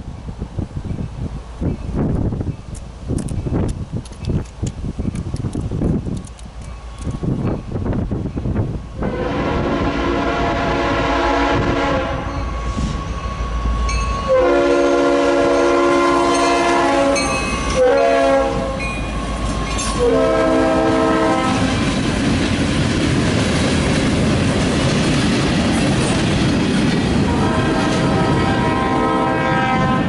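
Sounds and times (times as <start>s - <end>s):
locomotive air horn: 9.0s - 18.8s, 19.9s - 21.8s, 27.3s - 30.0s
train wheels clattering on rails: 18.8s - 28.7s.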